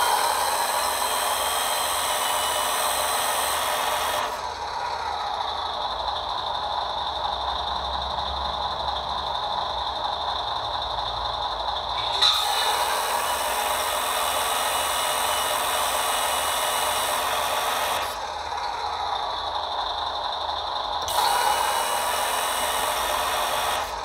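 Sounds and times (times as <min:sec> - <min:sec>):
hydraulic system low rumble: 0:00.0 - 0:24.0.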